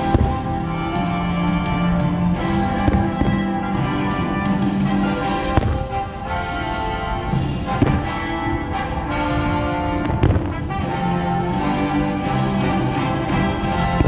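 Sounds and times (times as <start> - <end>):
firework bursts banging: 0.0 - 14.0
orchestral music: 0.0 - 14.0.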